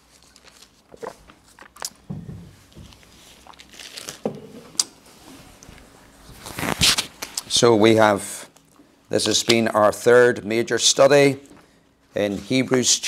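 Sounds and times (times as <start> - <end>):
paper rustling: 0.0 - 2.0, 2.7 - 4.8, 6.3 - 7.4.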